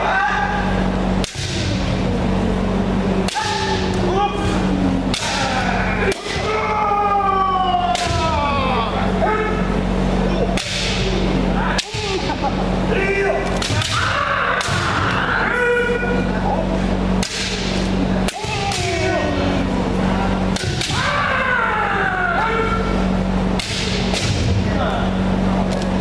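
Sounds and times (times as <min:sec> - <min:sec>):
people shouting: 0:00.0 - 0:25.6
bamboo swords cracking on armour: 0:10.6 - 0:11.0, 0:13.5 - 0:15.0, 0:17.2 - 0:19.0, 0:20.6 - 0:21.2, 0:23.6 - 0:24.5.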